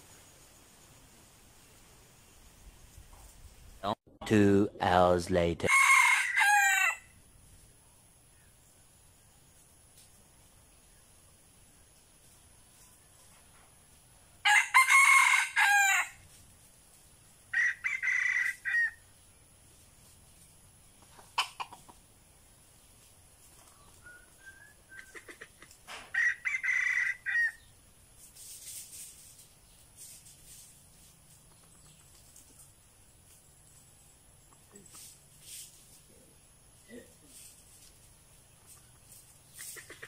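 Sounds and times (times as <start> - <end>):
rooster crowing: 5.6 - 7.2, 14.4 - 16.2, 17.5 - 19.0, 26.1 - 27.7.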